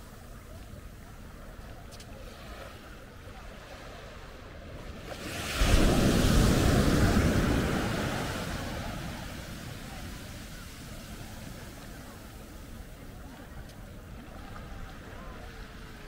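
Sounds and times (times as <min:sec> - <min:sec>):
wave breaking on shore: 0:04.8 - 0:16.0.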